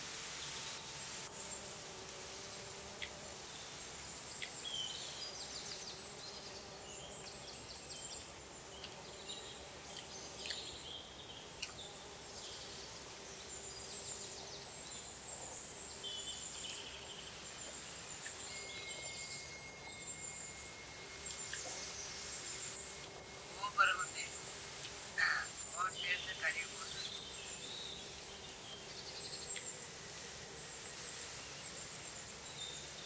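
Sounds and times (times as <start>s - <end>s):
high insect buzz: 0.0s - 33.0s
small birds chirping: 2.3s - 33.0s
thin steady tone: 15.1s - 27.7s.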